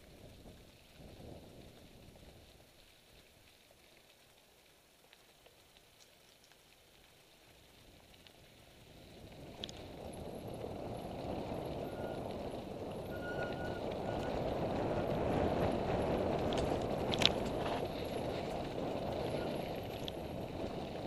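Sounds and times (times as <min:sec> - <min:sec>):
bike clicks and rattles: 0:00.0 - 0:21.0
bike tyres rushing on dirt: 0:00.0 - 0:21.0
wind past microphone: 0:09.2 - 0:21.0.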